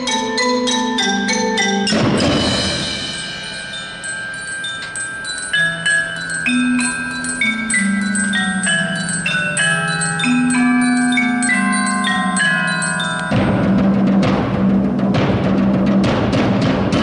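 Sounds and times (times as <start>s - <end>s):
held high bell tone: 0.0s - 14.0s
cymbal crash: 1.9s - 4.5s.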